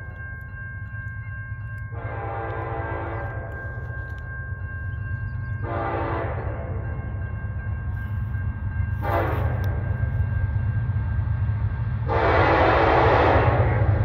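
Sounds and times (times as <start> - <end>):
low rumble of train: 0.0 - 14.0
train air horn blasts: 1.9 - 3.8, 5.6 - 6.8, 9.0 - 9.8, 12.0 - 14.0.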